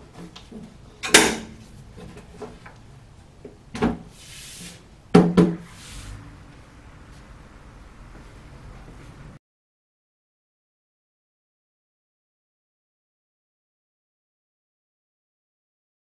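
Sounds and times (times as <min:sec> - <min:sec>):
folding workbench knocks and clanks: 0:01.0 - 0:01.6, 0:05.1 - 0:05.6.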